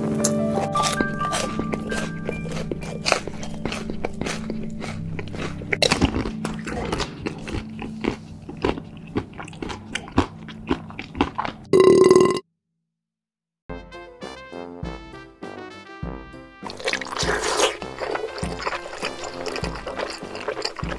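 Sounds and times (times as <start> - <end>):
crunchy chewing: 0.1 - 12.2, 16.6 - 20.9.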